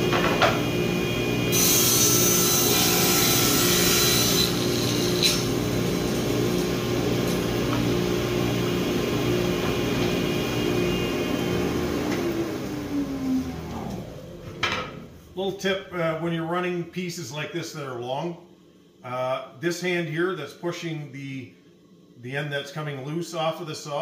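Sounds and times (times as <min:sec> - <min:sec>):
table saw cutting wood: 0:00.0 - 0:14.9.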